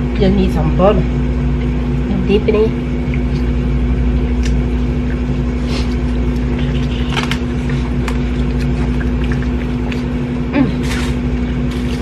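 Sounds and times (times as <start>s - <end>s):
steady mechanical hum: 0.0s - 12.0s
mouth clicks chewing corn: 4.2s - 12.0s.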